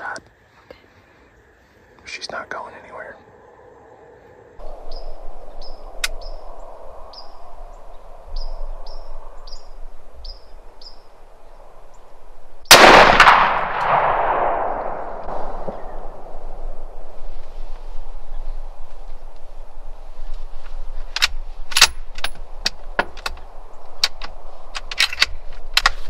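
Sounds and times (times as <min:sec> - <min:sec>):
rifle shot: 0:12.7 - 0:17.0.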